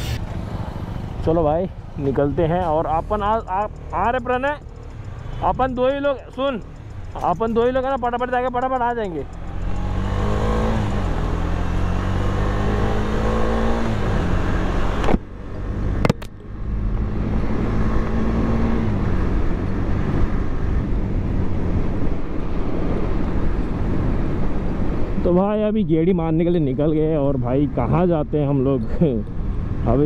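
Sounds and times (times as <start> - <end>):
motorcycle engine accelerating: 2.9 - 22.0.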